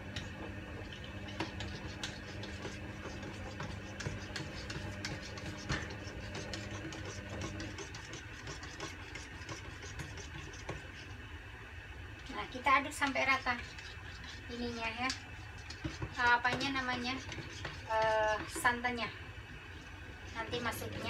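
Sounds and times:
steady low hum: 0.0s - 21.0s
metal spoon stirring in plastic cup: 0.1s - 11.2s, 12.2s - 19.1s.

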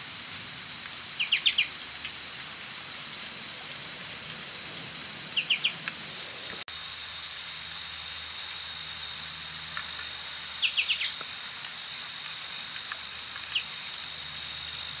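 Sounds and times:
finch chirping: 1.2s - 1.7s, 5.4s - 5.8s, 10.6s - 11.2s
high-pitched background hum: 3.2s - 15.0s.

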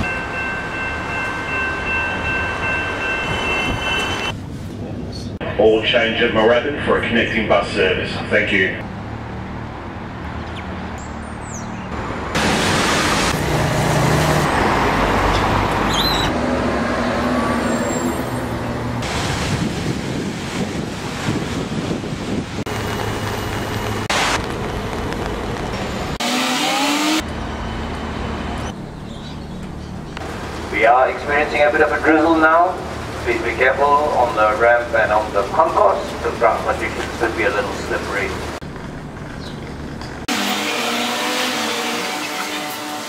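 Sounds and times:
bus engine: 0.0s - 43.0s
road traffic on wet road: 7.8s - 43.0s
rising motor whine: 26.2s - 28.7s.

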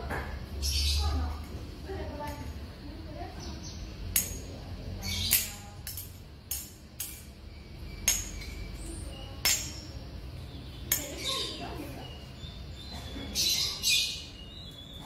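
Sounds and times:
sharp metal clinks: 4.1s - 10.1s, 10.8s - 11.6s.

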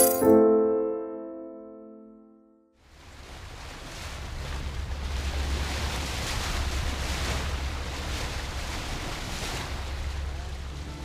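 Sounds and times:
wind and waves rushing: 2.8s - 11.0s
wind rumble on microphone: 2.8s - 11.0s.

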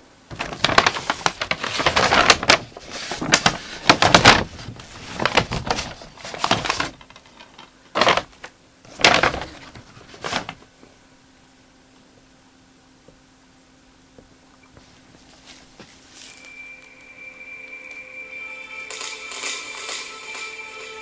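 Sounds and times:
package and fabric rustling: 0.3s - 10.7s, 14.8s - 17.1s.

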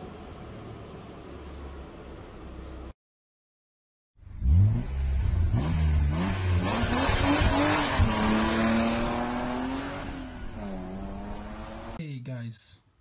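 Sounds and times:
car engine revving: 4.3s - 12.0s.

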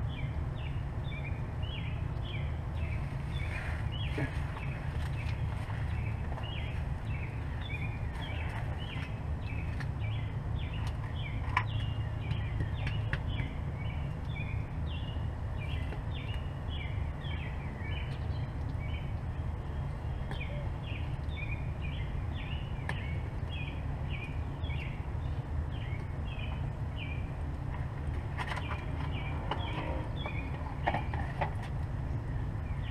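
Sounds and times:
birds chirping: 0.0s - 32.9s
steady low rumble: 0.0s - 32.9s.

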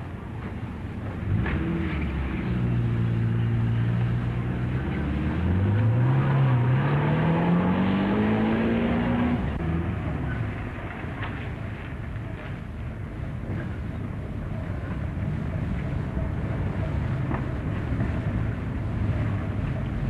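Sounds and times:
car engine accelerating: 1.2s - 10.6s.

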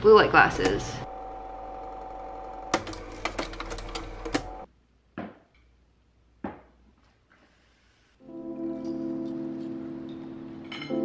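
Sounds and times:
mechanical hum: 0.0s - 4.7s.

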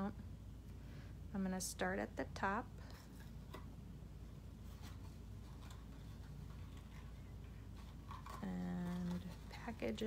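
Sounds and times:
low steady hum: 0.0s - 10.0s
twine wrapping around paper box: 4.6s - 10.0s.

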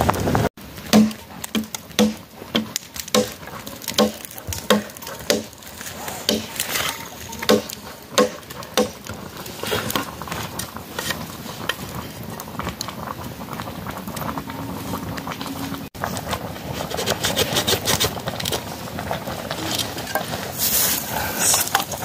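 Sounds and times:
sickle blade chopping bark: 0.9s - 5.6s, 6.2s - 6.6s, 7.4s - 9.0s
blade ticking and scraping stick: 0.9s - 9.2s.

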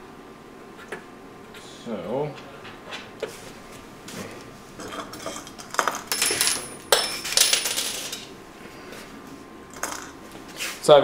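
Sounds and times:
metal hardware clinking: 6.1s - 8.3s.

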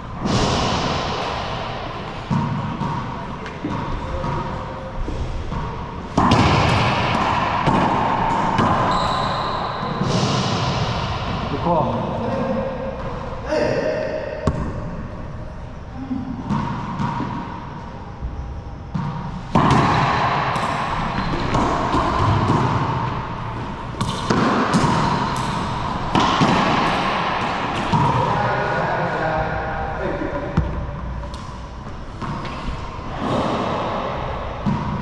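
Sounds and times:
rubber ball smacking racquets and walls: 0.2s - 9.1s, 18.9s - 28.3s, 30.5s - 35.0s.

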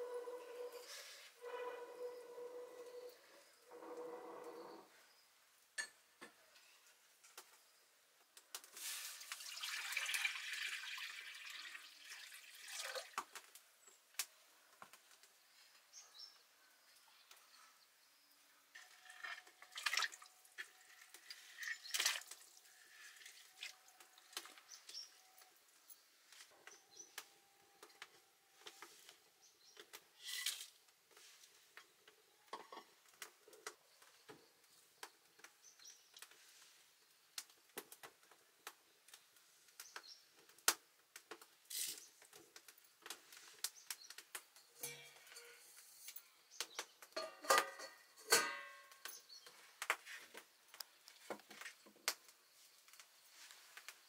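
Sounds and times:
water pouring and splashing: 8.7s - 13.6s, 18.8s - 24.6s.

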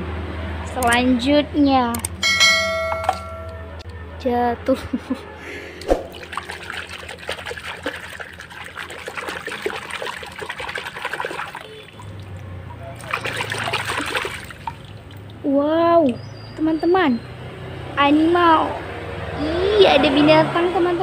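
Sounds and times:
water sloshing in plastic basin: 5.9s - 15.4s.

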